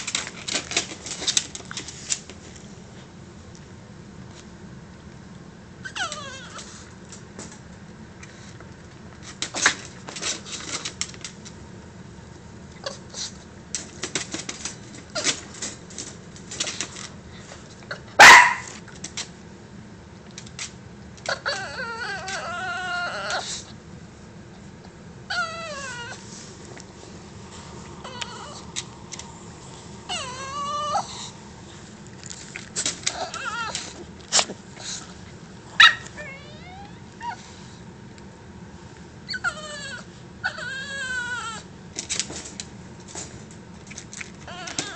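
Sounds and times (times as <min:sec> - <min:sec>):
small dog crying whines: 0:05.8 - 0:06.8, 0:21.3 - 0:23.7, 0:25.3 - 0:26.2, 0:28.0 - 0:28.7, 0:30.1 - 0:31.3, 0:33.1 - 0:34.0, 0:35.8 - 0:37.4, 0:39.3 - 0:41.7, 0:44.4 - 0:44.9.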